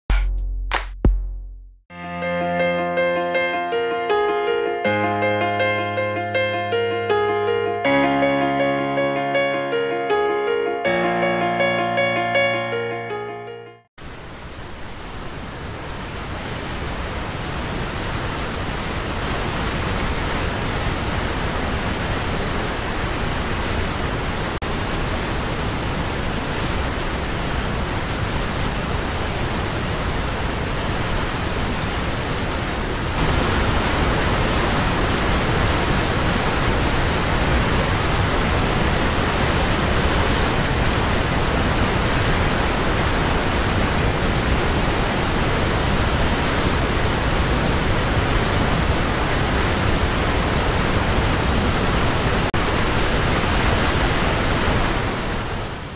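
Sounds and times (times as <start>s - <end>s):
waterfall rushing: 14.0s - 55.9s.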